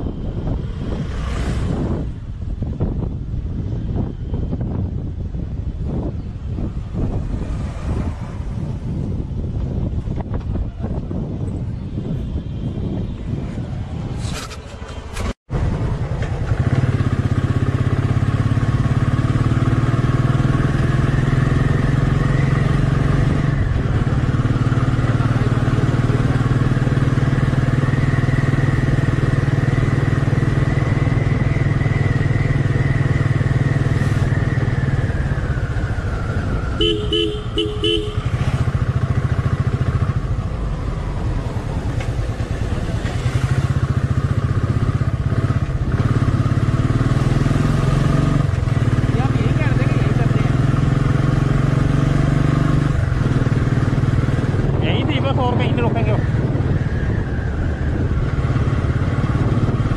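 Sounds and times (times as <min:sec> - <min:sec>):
motorcycle engine running: 0:14.8 - 0:57.1, 0:57.7 - 0:59.9
horn toots: 0:36.7 - 0:38.8.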